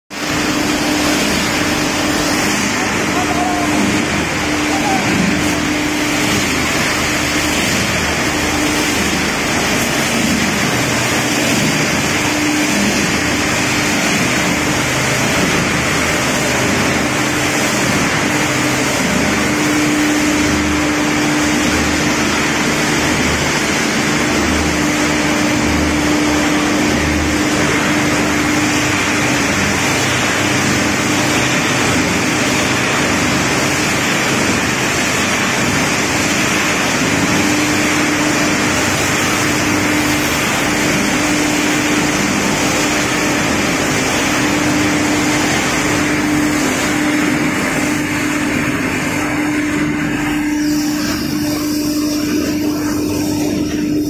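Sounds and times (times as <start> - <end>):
industrial machinery roaring: 0.1 - 54.0
steady hum: 0.1 - 54.0.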